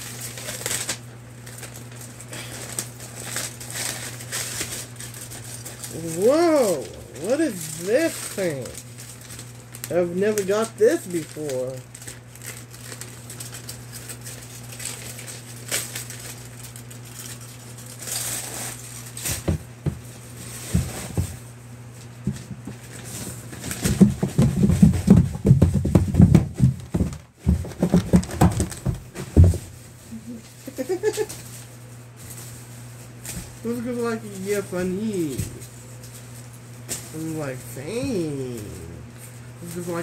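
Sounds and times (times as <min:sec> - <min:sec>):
package handling clicks and rustles: 0:00.0 - 0:19.6, 0:22.0 - 0:29.6
steady low hum: 0:00.0 - 0:40.0
loud close bumps and rustling: 0:22.2 - 0:29.9.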